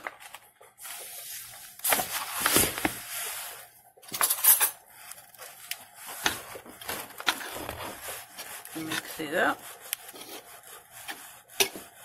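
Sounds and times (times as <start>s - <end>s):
metal spoon stirring flour in bowl: 5.1s - 12.0s.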